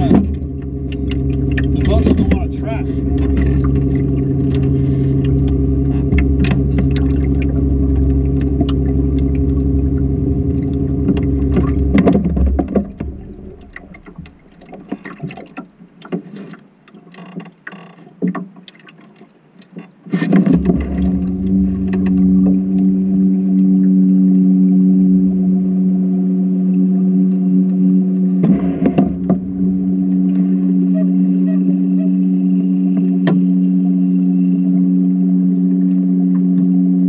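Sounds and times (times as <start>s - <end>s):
outboard motor running: 0.0s - 16.5s, 19.8s - 37.0s
water splashes and knocks: 0.0s - 23.6s, 28.4s - 30.5s, 33.0s - 33.4s.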